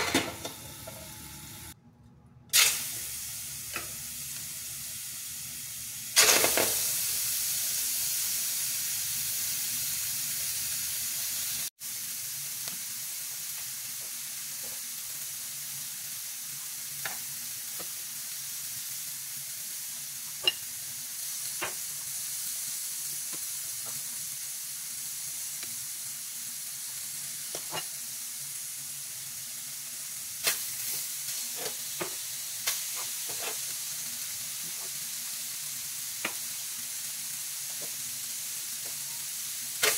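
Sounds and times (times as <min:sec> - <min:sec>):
meat sizzling in a frying pan: 0:02.6 - 0:39.9
metal tongs tapping a pan: 0:20.4 - 0:20.6.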